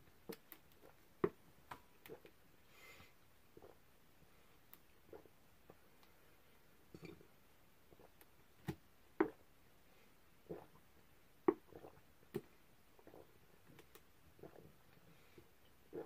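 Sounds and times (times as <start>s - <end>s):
person gulping soda: 0.2s - 2.4s, 3.5s - 3.8s, 4.9s - 5.8s, 7.0s - 9.5s, 10.4s - 15.0s, 15.6s - 16.0s.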